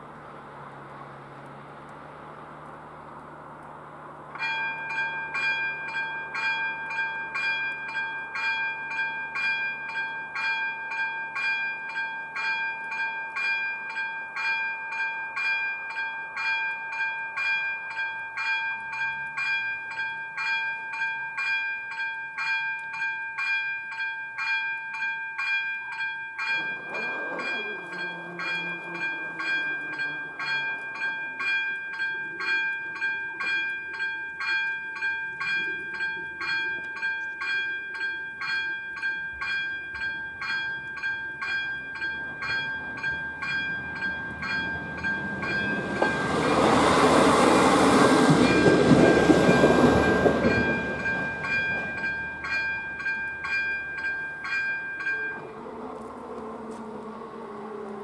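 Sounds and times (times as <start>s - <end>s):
level crossing warning bell: 4.3s - 58.0s
lower hum sliding down: 55.4s - 58.0s.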